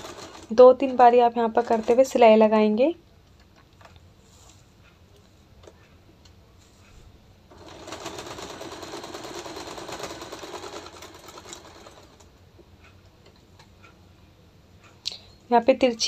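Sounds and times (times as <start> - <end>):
sewing machine stitching: 0.0 - 0.9, 1.5 - 2.2, 7.5 - 12.3.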